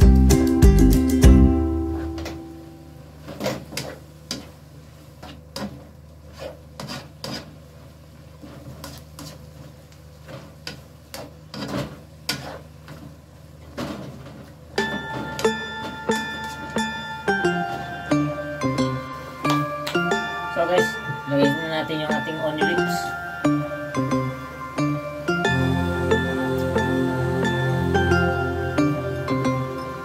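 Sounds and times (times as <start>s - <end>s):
plucked guitar music: 0.0s - 2.9s, 14.8s - 30.0s
spatula scraping a wok: 6.3s - 7.6s, 12.3s - 12.7s
low hum: 14.8s - 30.0s.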